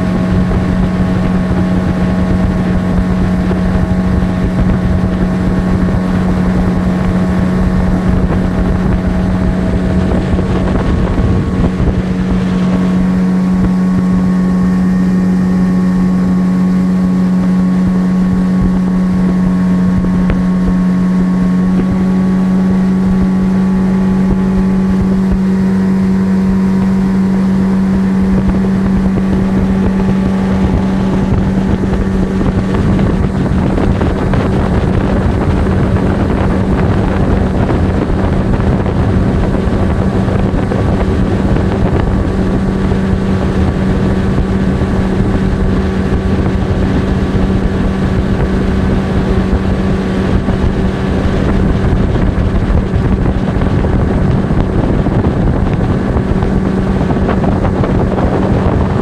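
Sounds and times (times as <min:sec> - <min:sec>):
outboard motor running: 0:00.0 - 0:59.0
wind noise on microphone: 0:00.0 - 0:59.0.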